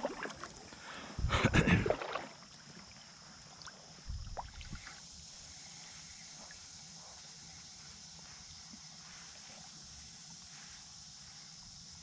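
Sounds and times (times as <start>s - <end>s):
kayak paddle strokes in water: 0.0s - 0.8s.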